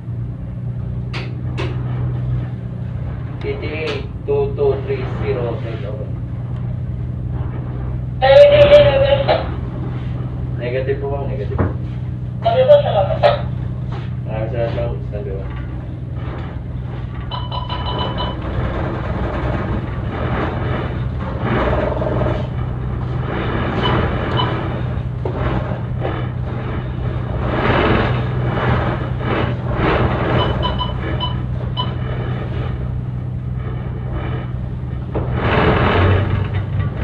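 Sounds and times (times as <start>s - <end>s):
ship engines droning: 0.0s - 37.0s
short high beeps: 30.4s - 32.0s.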